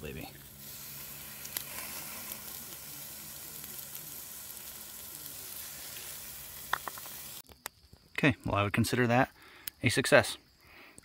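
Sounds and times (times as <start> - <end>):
butter sizzling on steak: 0.0 - 7.5.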